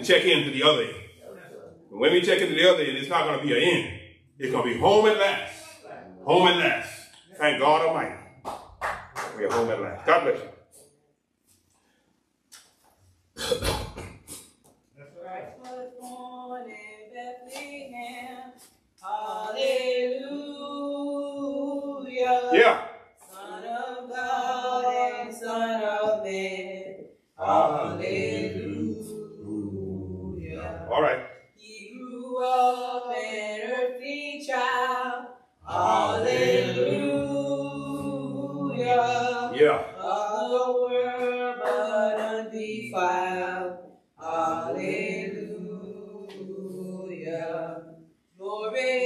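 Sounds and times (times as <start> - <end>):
women singing a hymn: 15.2 - 31.0, 31.6 - 49.0.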